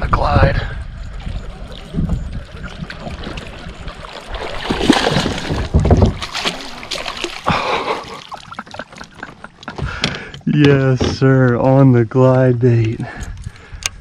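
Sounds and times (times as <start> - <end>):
fish thrashing and splashing: 1.1 - 10.4.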